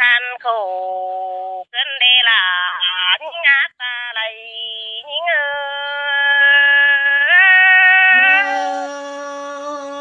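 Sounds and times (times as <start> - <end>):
lower held voice: 5.0 - 10.0.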